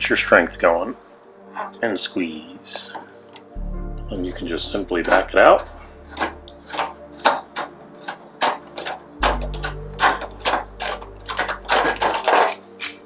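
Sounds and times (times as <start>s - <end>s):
deep bass note: 3.6s - 6.1s.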